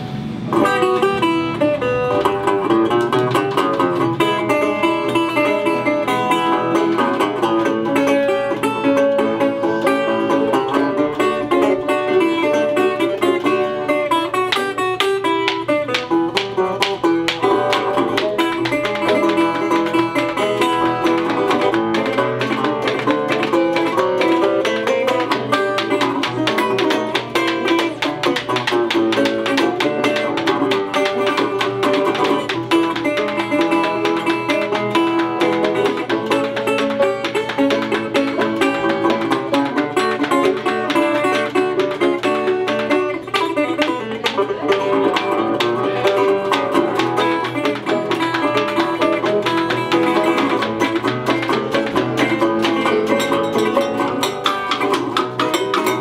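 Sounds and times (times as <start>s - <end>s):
resonator guitar picking: 0.0s - 56.0s
banjo picking: 0.1s - 56.0s.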